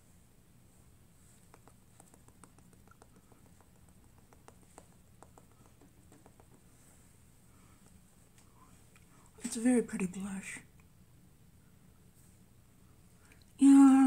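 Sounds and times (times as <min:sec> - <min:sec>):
low room hum: 0:00.0 - 0:14.0
makeup sponge dabbing skin: 0:01.2 - 0:07.0.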